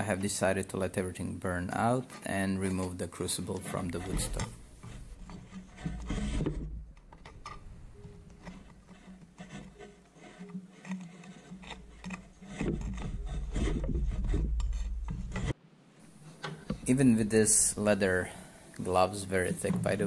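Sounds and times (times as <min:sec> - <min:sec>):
embers clicking: 0:03.3 - 0:15.6.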